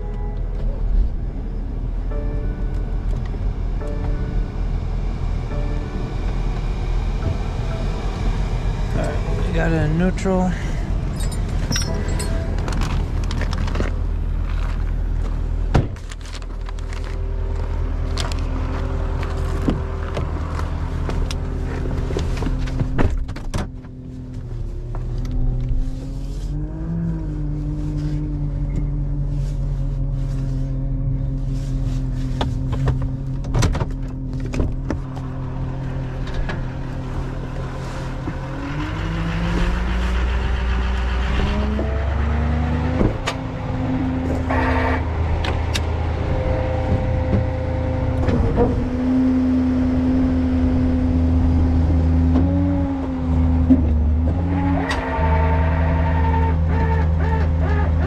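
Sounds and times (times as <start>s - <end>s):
diesel engine idling: 0.0s - 22.2s.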